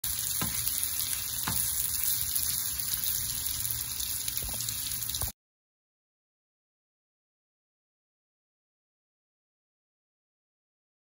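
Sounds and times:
chicken sizzling in a frying pan: 0.0s - 5.4s.

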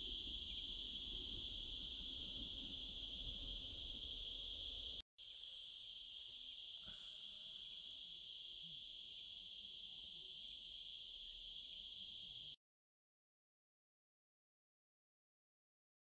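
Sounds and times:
insects shrilling: 0.0s - 12.6s.

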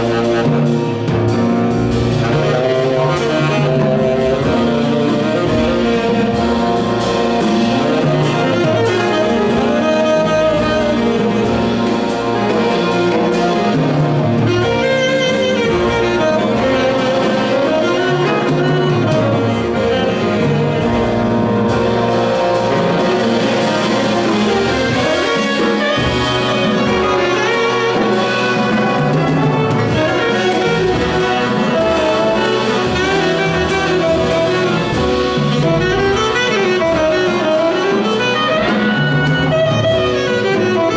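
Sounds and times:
jazz big band playing: 0.0s - 40.9s
tenor saxophone solo: 0.0s - 40.9s.

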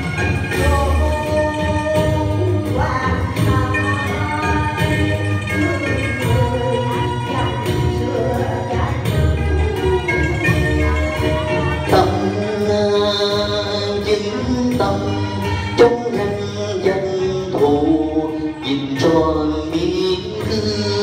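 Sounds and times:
instrumental accompaniment: 0.0s - 21.0s
person singing gliding vocal line: 0.0s - 21.0s.

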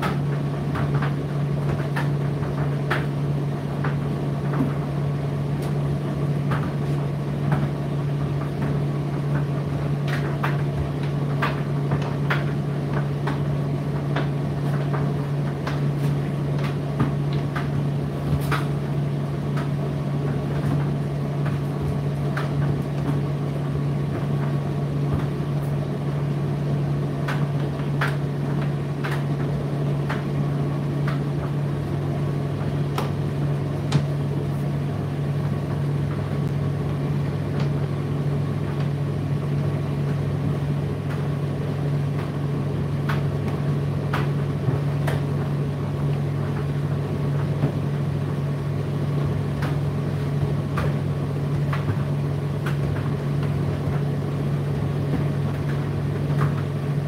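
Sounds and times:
tumble dryer motor hum: 0.0s - 57.0s
turning drum and fan: 0.0s - 57.0s.

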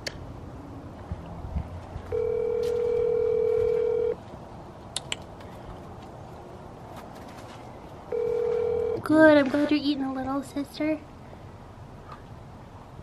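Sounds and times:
telephone ringback tone: 2.1s - 4.2s, 8.1s - 9.1s.

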